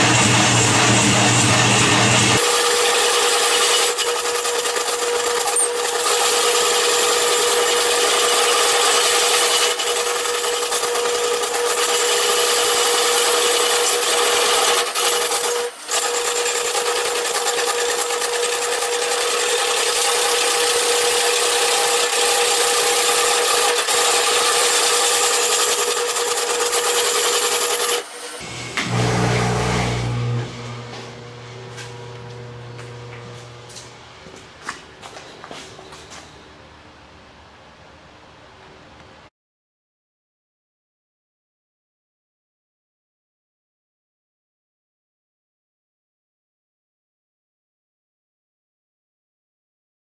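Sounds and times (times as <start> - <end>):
lathe hum: 0.0 - 34.2
gouge scraping wood on lathe: 2.4 - 28.4.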